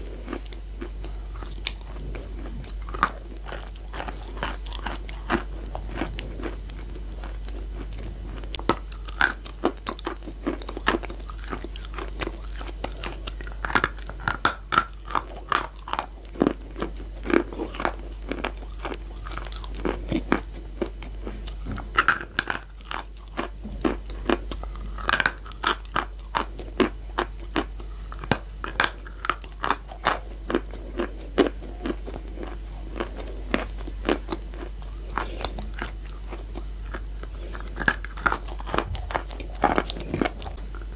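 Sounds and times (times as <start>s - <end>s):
chalk crunching when chewed: 0.0s - 40.9s
low steady hum: 0.0s - 40.9s.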